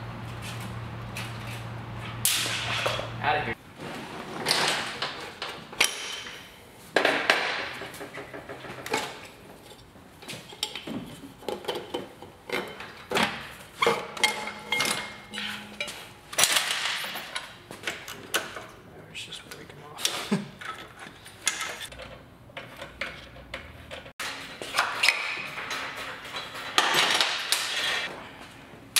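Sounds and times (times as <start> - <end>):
hand tools clinking on metal parts: 13.8 - 17.5
metallic ringing: 14.2 - 16.4.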